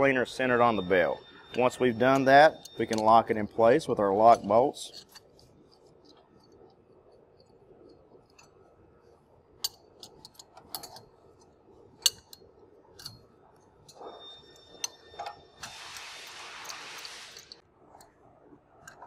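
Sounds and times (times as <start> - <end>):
wrenches clicking on metal bolts: 9.6 - 11.1.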